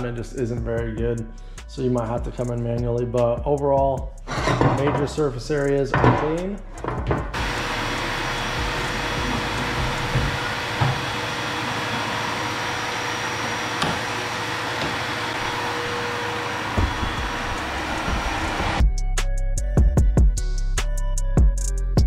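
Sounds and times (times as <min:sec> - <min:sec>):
dust collector vacuum running: 0:07.3 - 0:18.8.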